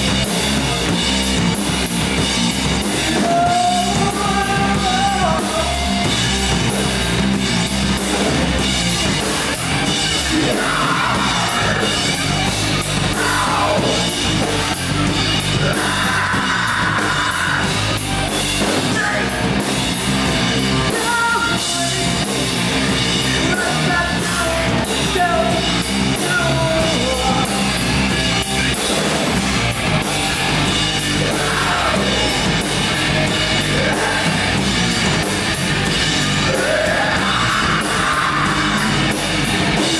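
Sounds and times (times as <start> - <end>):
rock band playing: 0.0 - 39.9
person singing: 2.9 - 6.2, 10.2 - 14.6, 15.6 - 18.0, 23.4 - 28.0, 31.2 - 32.6, 33.6 - 34.6, 36.4 - 39.2.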